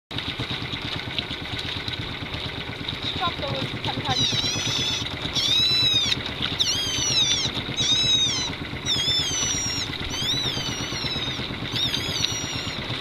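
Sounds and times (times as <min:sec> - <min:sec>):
outboard motor running: 0:00.1 - 0:13.0
water noise: 0:00.1 - 0:13.0
wind: 0:00.1 - 0:13.0
high-pitched squeaks: 0:04.2 - 0:12.8.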